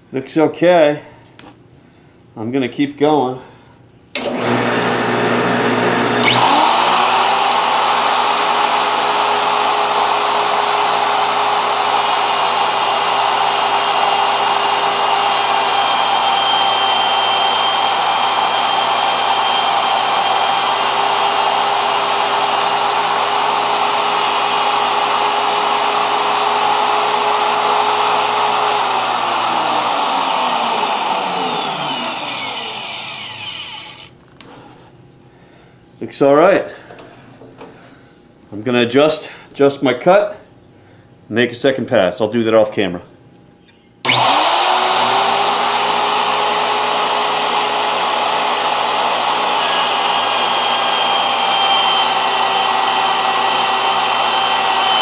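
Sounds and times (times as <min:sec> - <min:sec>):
router whining: 0:04.2 - 0:34.2, 0:44.0 - 0:55.0.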